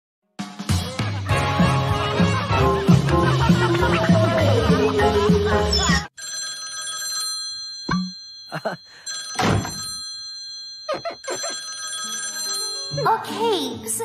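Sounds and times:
cartoon party music: 0.6 - 6.1
electronic bell ringing: 5.7 - 13.2.

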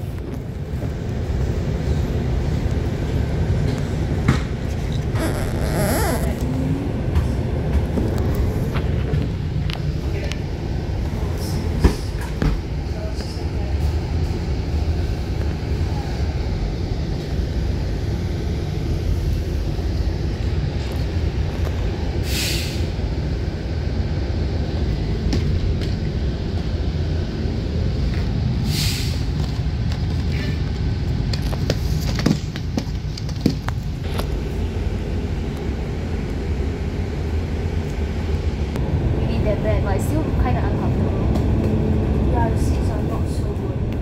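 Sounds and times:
bus engine droning: 0.0 - 44.0
air-brake hisses: 22.2 - 22.9, 28.6 - 29.3.

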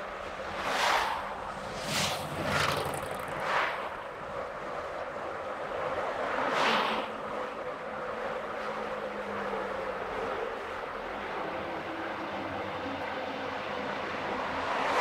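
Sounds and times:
passing traffic whooshes: 0.0 - 15.0.

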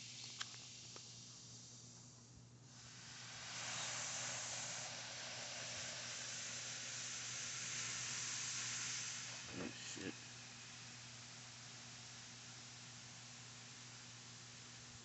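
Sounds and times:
acid fizzing and hissing: 0.0 - 15.0.

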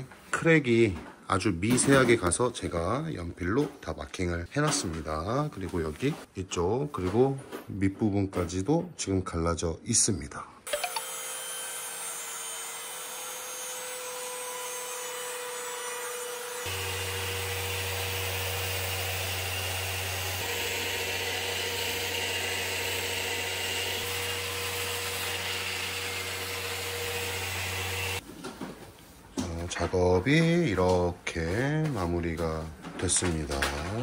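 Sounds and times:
power tool high whine: 10.7 - 28.2.

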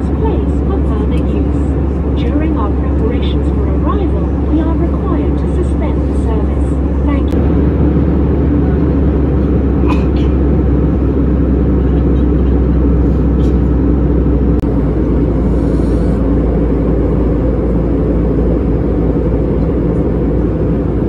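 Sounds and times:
airplane engines droning: 0.0 - 21.0
rushing air: 13.0 - 19.4.

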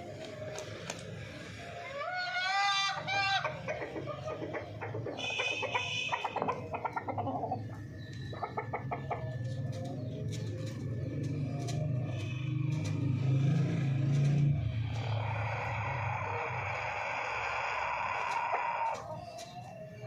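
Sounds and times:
hens clucking: 0.2 - 13.0, 14.0 - 20.0
rooster calling: 1.8 - 3.7, 5.1 - 7.6, 14.8 - 19.2.

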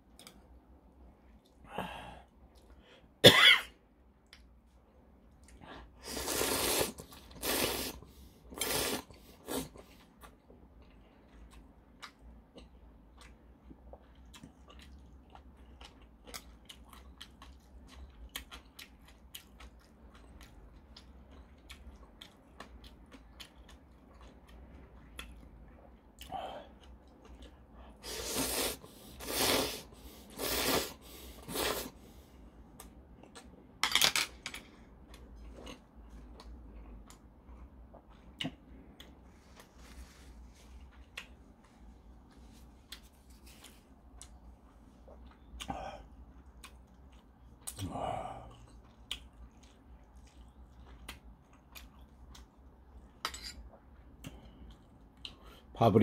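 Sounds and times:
person slurping noodles: 6.0 - 9.8, 28.0 - 32.0
chewing: 9.4 - 28.0, 40.6 - 55.6.

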